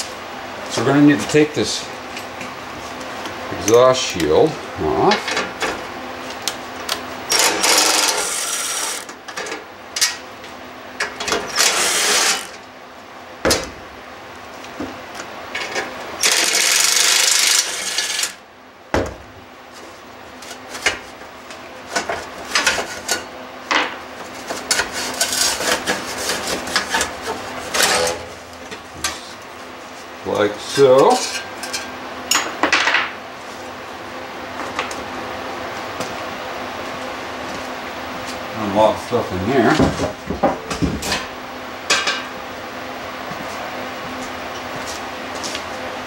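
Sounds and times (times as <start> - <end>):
cordless drill spinning bolts: 7.3 - 9.1, 11.6 - 12.6, 16.2 - 18.4
hand tools clicking and clanking: 24.5 - 29.3.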